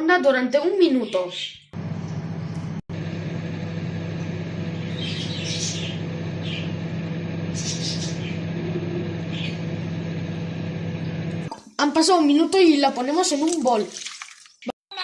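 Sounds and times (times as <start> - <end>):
microwave oven humming: 1.8 - 11.5.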